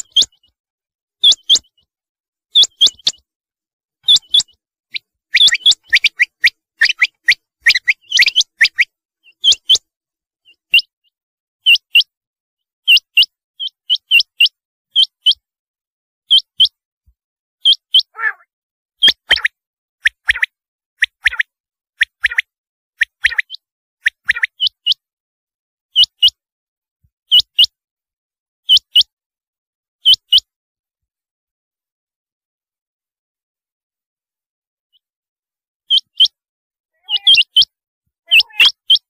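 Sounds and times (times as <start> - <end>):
quail calling: 4.0 - 9.8, 17.7 - 19.5, 37.0 - 37.7, 38.3 - 39.0.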